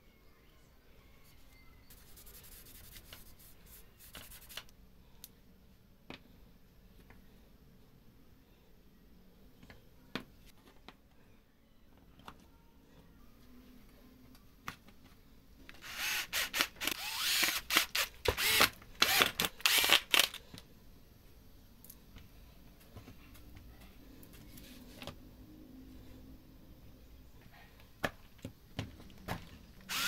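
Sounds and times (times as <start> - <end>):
cordless drill bursts: 15.8 - 20.4.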